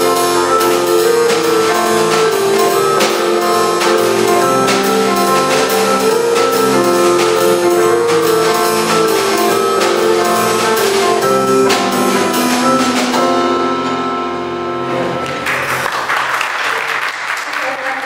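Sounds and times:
jazz band playing: 0:00.0 - 0:15.9
audience applause: 0:15.2 - 0:18.0.

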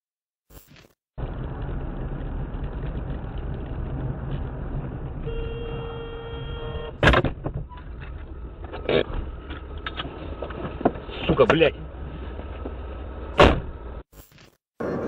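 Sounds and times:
car engine and road noise: 0:00.5 - 0:15.0
car horn blast: 0:05.2 - 0:07.1
loud thud: 0:13.4 - 0:13.7.

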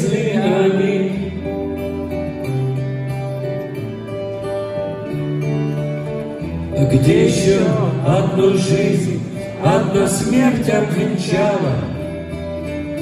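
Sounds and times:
acoustic guitar: 0:00.0 - 0:13.0
sliding lead melody: 0:00.0 - 0:13.0.

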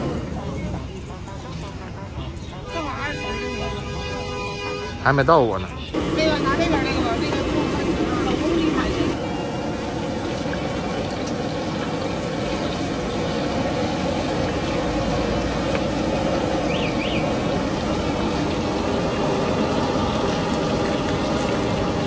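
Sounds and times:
food sizzling in hot oil: 0:06.0 - 0:22.0.

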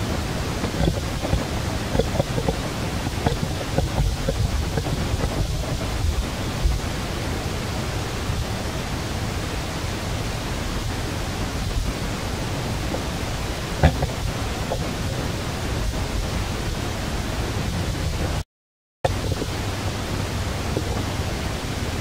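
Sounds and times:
wind buffeting microphone: 0:00.0 - 0:18.4
faint ticks: 0:00.6 - 0:05.9.

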